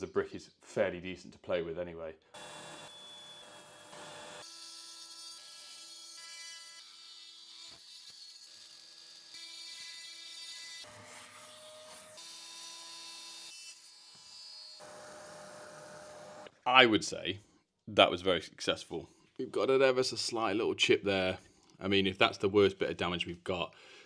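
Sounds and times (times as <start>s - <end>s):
power tool cutting tile: 2.4s - 16.5s.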